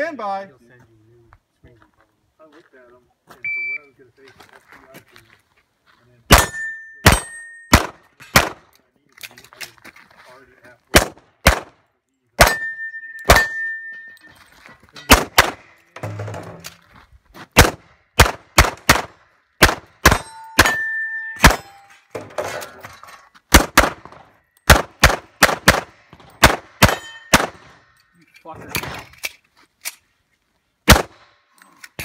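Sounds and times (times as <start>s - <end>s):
pistol shots: 6.3s - 8.7s, 10.9s - 11.8s, 12.4s - 13.7s, 15.1s - 15.7s, 17.6s - 21.8s, 23.5s - 27.8s, 30.8s - 31.3s
metallic ringing tone: 6.4s - 7.7s, 12.5s - 15.1s, 20.2s - 22.1s, 26.9s - 27.4s.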